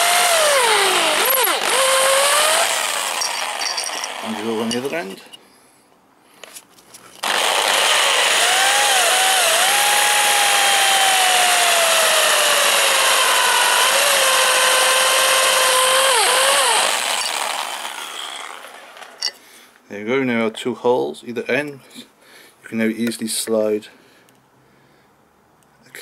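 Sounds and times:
power drill boring into wood: 0.0s - 5.0s, 7.2s - 19.3s.

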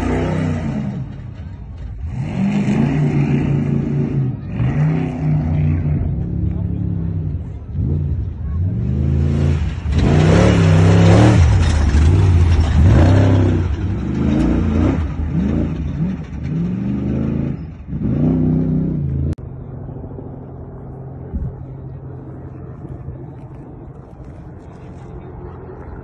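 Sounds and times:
truck engine revving: 0.0s - 19.4s
faint low rumble: 18.9s - 26.0s.

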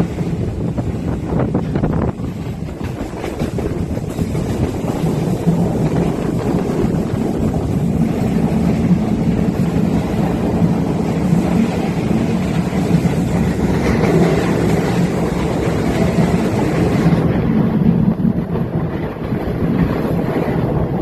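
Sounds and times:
train rumbling on track: 0.0s - 21.0s
wind on microphone: 0.0s - 21.0s.

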